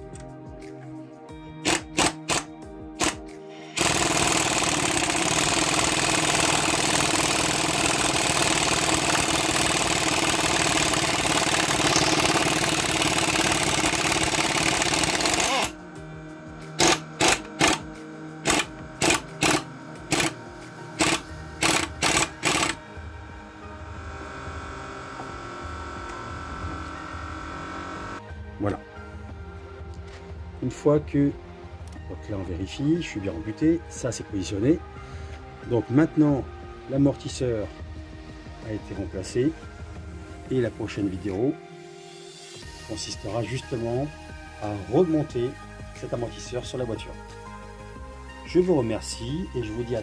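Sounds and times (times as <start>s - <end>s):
power tool short bursts: 1.6s - 15.8s, 16.8s - 20.4s, 21.0s - 22.8s
power tool running: 1.6s - 16.1s, 16.7s - 28.2s.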